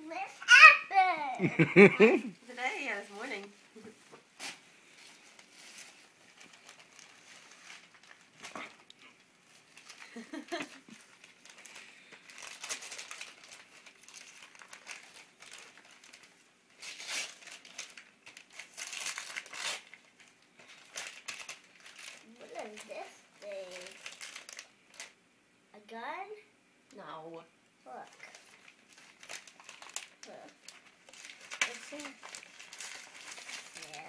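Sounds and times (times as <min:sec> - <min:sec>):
tissue paper crinkling: 0:04.4 - 0:25.2, 0:27.9 - 0:34.0.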